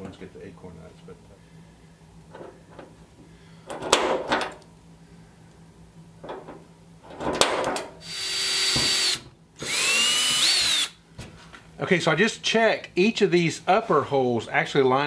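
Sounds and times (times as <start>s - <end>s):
cordless drill whining: 8.0s - 11.0s.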